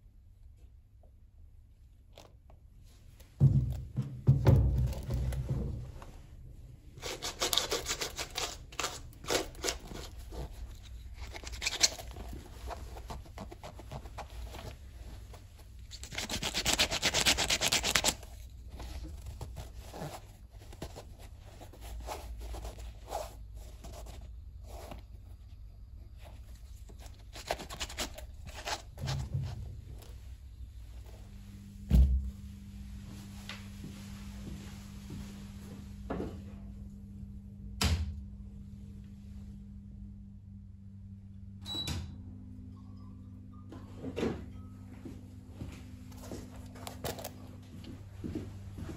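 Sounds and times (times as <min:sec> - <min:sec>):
brush rubbing suede: 0:07.0 - 0:25.2
low hum: 0:18.2 - 0:48.9.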